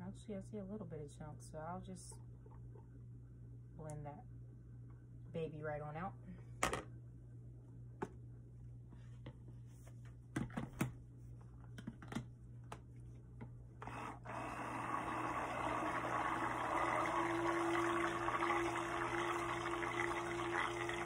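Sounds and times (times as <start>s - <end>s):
stick blender running: 13.8s - 21.0s.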